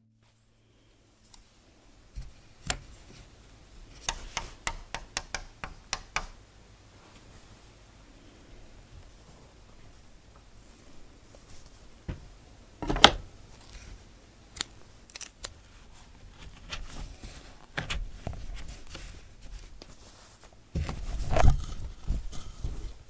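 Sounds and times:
embroidery hoop clicks and taps: 4.0s - 6.4s
cloth rustling: 15.8s - 23.0s.

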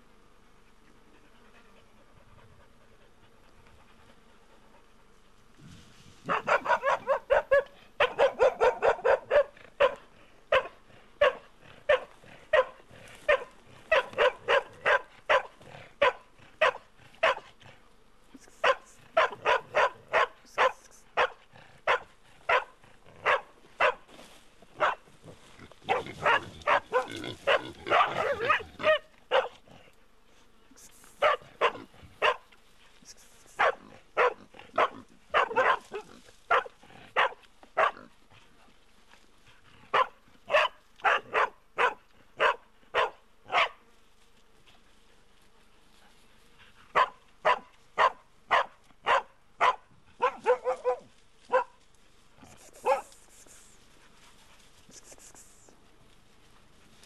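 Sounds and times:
dog barking: 6.2s - 17.6s, 18.6s - 24.1s, 24.8s - 25.1s, 25.8s - 29.6s, 31.2s - 32.5s, 33.5s - 38.1s, 39.9s - 43.8s, 46.9s - 51.8s, 52.5s - 53.2s.

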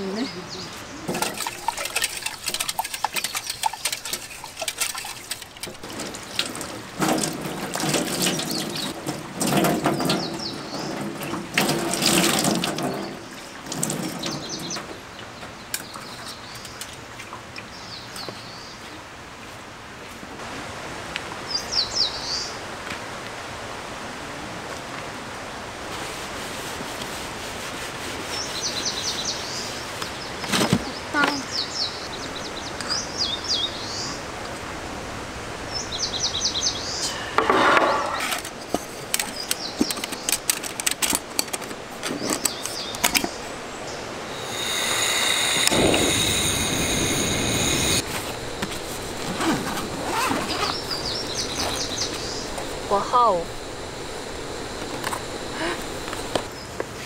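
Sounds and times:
birds chirping: 0.0s - 16.9s, 28.4s - 34.3s, 42.0s - 56.8s
light clatters of rinsing: 1.0s - 18.2s
tap water running into sink: 1.1s - 10.3s, 11.0s - 14.4s.

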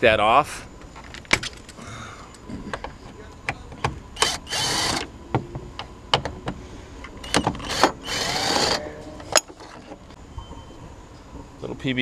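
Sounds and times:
impact wrench whirring: 4.2s - 5.1s, 7.3s - 8.8s.

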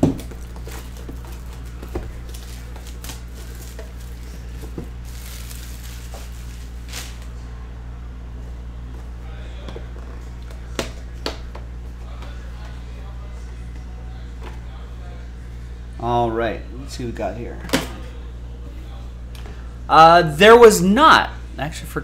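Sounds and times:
steady low hum: 0.0s - 22.0s
plastic wrap crinkling: 0.3s - 7.3s.

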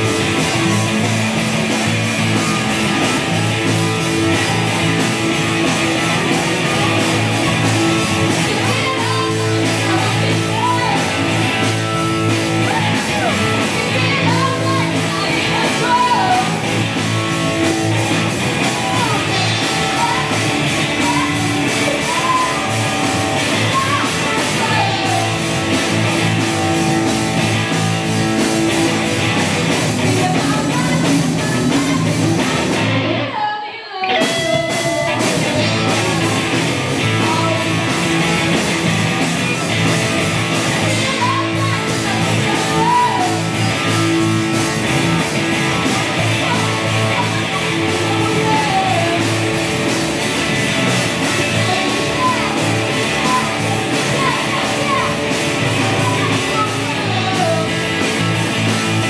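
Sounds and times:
rock band playing: 0.0s - 33.4s, 34.0s - 59.0s
woman singing: 8.4s - 11.2s, 13.7s - 16.6s, 23.6s - 25.2s, 30.0s - 32.6s, 33.2s - 35.2s, 46.3s - 49.3s.

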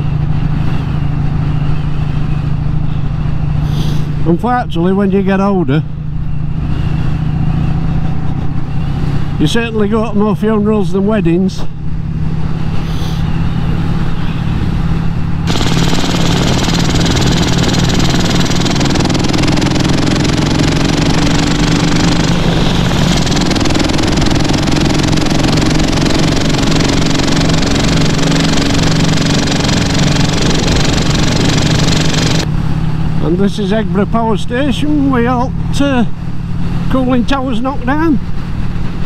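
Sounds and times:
wind and road rush: 0.0s - 39.0s
motorcycle engine running: 13.4s - 33.3s.

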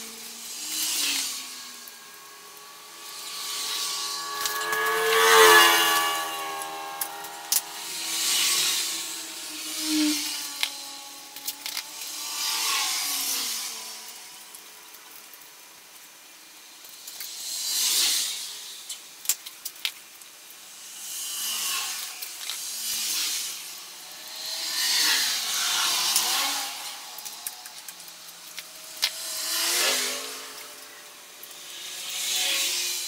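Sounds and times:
masking tape pulled off roll: 0.0s - 14.7s.

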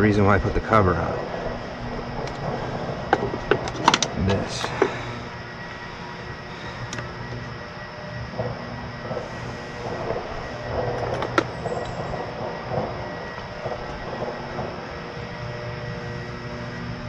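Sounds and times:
battery hardware rattling and scraping: 0.0s - 5.8s, 8.3s - 14.7s
steady hum: 0.0s - 17.0s.

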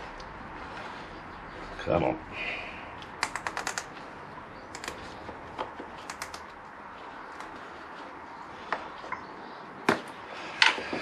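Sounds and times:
low steady background noise: 0.0s - 11.0s
hoses and connectors clicking: 3.0s - 4.1s, 4.7s - 6.7s, 7.3s - 7.6s.

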